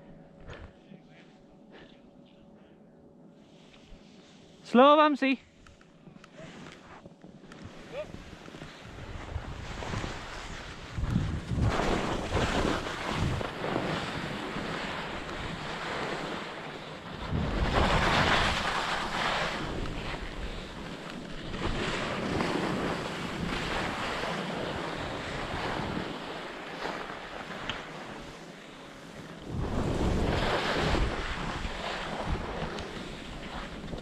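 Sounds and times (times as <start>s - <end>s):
skis scraping over snow: 6.0s - 34.0s
wind rumbling on microphone: 7.0s - 28.5s, 29.2s - 34.0s.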